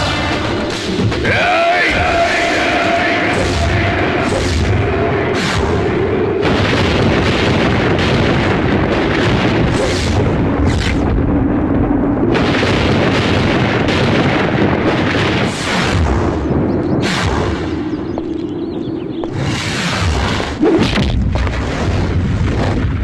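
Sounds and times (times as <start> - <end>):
loud booming hits: 0.0 - 18.4
steady low drone: 0.0 - 23.0.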